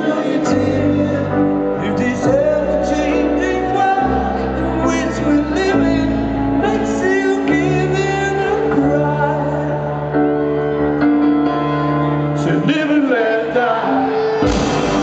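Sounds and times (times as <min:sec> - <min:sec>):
man singing: 0:00.0 - 0:10.4, 0:12.2 - 0:15.0
piano chords: 0:00.0 - 0:15.0
rock band playing: 0:13.8 - 0:15.0.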